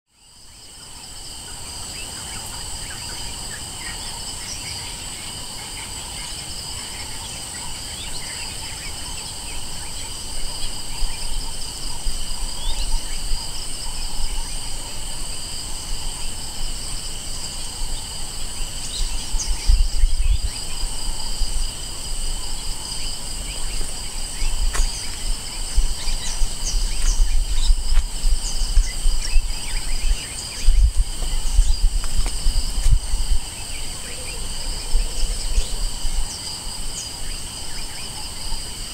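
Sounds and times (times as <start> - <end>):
insects shrilling: 7.9 - 38.9.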